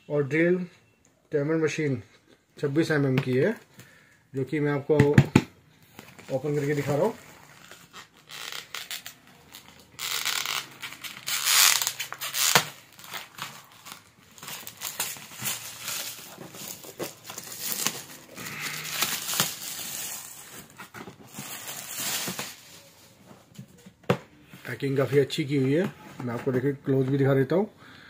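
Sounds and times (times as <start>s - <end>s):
plastic shrink-wrap tearing: 6.2s - 23.0s.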